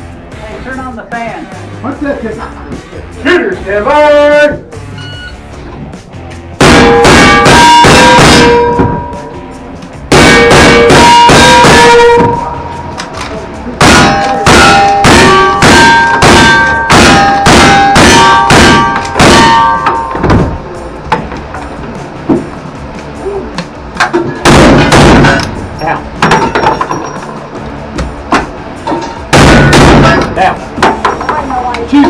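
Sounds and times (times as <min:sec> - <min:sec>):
steel target ringing: 0:06.6 - 0:09.4, 0:10.1 - 0:12.9, 0:13.8 - 0:20.3.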